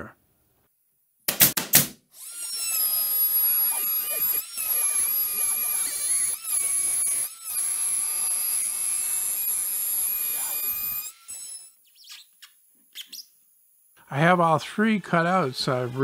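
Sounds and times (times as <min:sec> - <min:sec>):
router whining cutting plywood: 0:02.2 - 0:11.8, 0:14.2 - 0:16.0.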